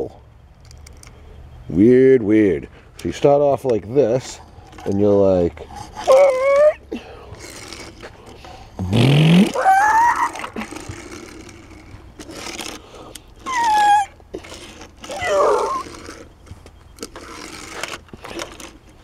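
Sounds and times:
man making car sound effects: 8.8s - 10.0s
toy car scraping on table: 10.3s - 16.4s, 17.0s - 18.8s.

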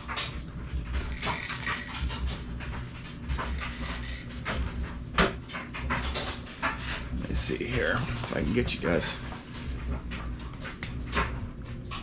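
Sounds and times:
camera handling rumble and rubbing: 3.6s - 4.4s.

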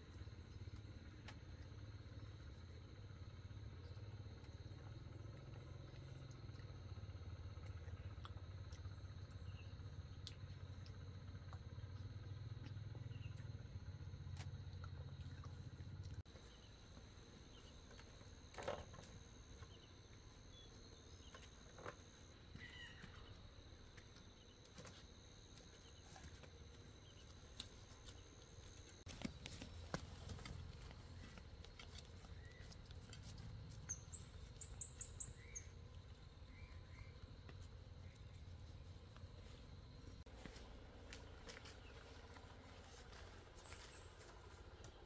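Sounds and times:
birds chirping: 27.0s - 45.0s.

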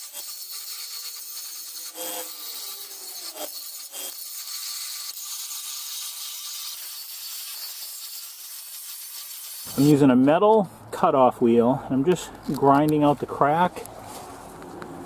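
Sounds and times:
angle grinder cutting metal: 0.0s - 10.0s.

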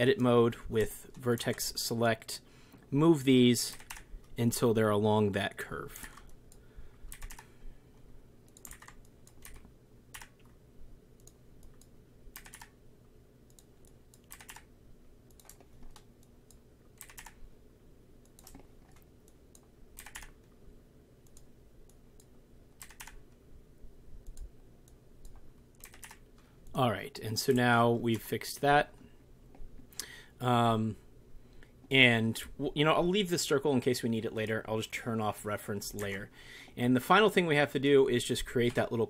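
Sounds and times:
low steady hum: 0.0s - 39.0s
keyboard and mouse clicks: 3.7s - 4.4s, 7.1s - 7.5s, 8.5s - 10.6s, 11.2s - 12.8s, 13.5s - 14.7s, 15.3s - 17.4s, 18.2s - 20.5s, 21.2s - 23.2s, 24.2s - 26.8s.

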